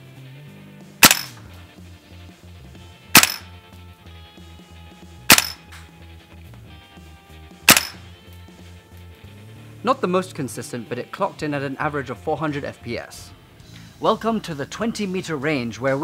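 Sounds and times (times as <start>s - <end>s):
airsoft rifle shots: 1.0s - 1.4s, 3.1s - 3.5s, 5.3s - 5.7s, 7.7s - 8.0s.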